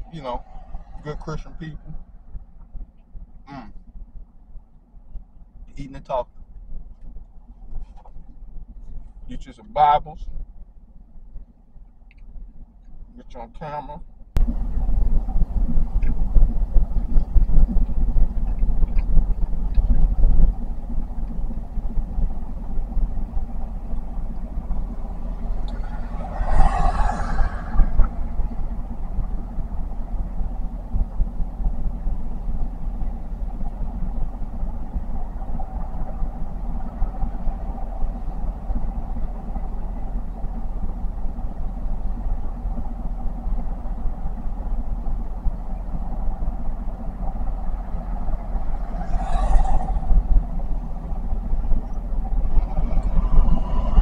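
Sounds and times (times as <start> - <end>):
vehicle engine idling: 0.0 - 54.0
rush of noise: 24.1 - 29.7, 47.5 - 54.0.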